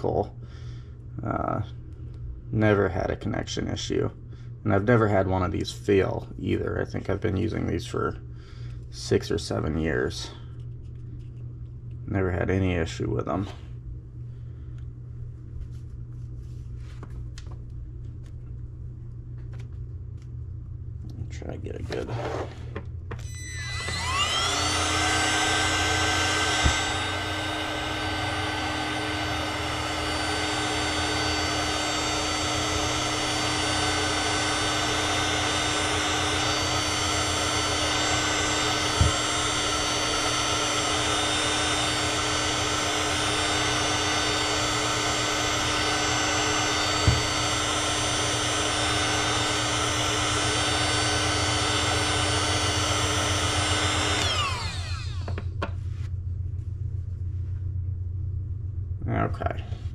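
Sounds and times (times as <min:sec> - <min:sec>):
fan winding down: 0:21.1 - 0:55.8
heat gun blowing with fan whine: 0:21.4 - 0:55.8.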